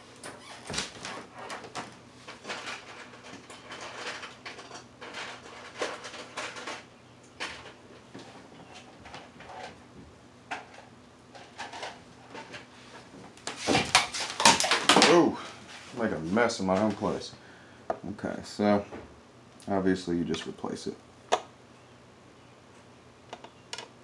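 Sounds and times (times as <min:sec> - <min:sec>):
scrapes taps and rustles: 0:00.2 - 0:17.2.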